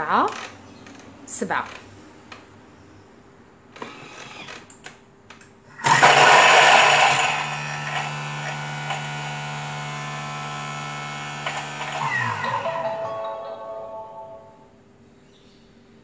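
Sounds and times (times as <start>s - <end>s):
food processor motor chopping: 5.8s - 13.0s.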